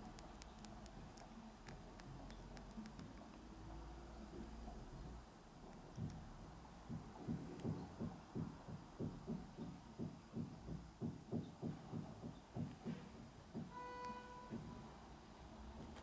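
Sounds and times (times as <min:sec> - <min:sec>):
soft low thumps: 0:05.9 - 0:14.9.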